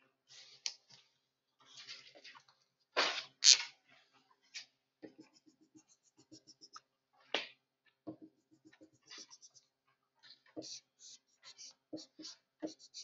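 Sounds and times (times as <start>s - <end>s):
marker writing on whiteboard: 5.0s - 6.9s, 8.1s - 9.8s, 10.5s - 13.0s.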